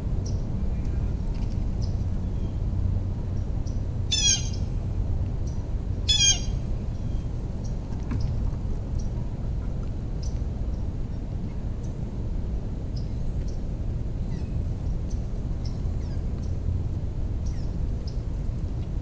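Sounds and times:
steady low rumble: 0:00.0 - 0:19.0
bird squawking harshly: 0:04.1 - 0:04.6, 0:06.1 - 0:06.5.

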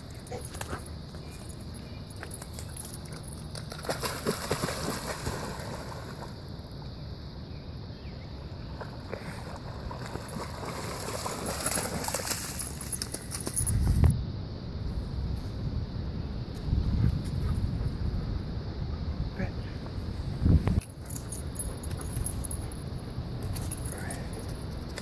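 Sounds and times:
dog splashing through water: 0:03.5 - 0:06.2, 0:08.8 - 0:13.7.

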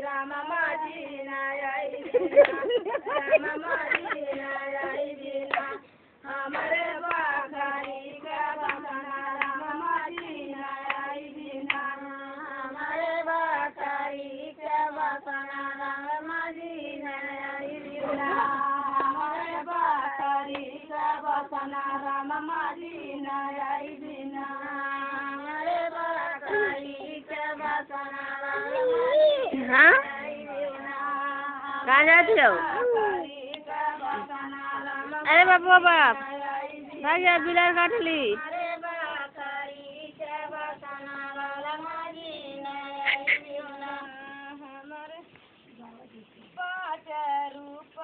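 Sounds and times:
women and children singing: 0:00.0 - 0:48.0
hand clapping: 0:02.4 - 0:02.7, 0:03.8 - 0:04.5, 0:05.5 - 0:05.8, 0:06.5 - 0:08.0, 0:08.6 - 0:11.9.

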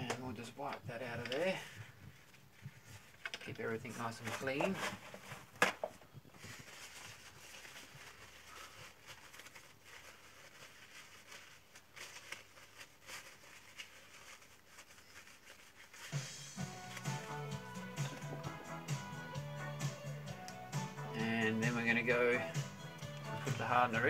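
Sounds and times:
paper towel rustling: 0:00.6 - 0:18.3
background music: 0:16.1 - 0:24.0.

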